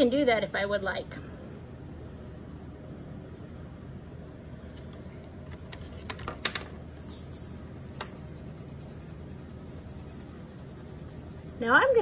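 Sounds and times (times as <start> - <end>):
crayon rubbing on paper: 7.0 - 12.0
paper hiss: 7.0 - 12.0.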